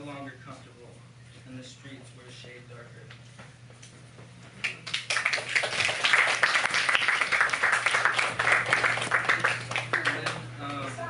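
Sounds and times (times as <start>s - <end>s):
audience applauding: 4.8s - 10.5s.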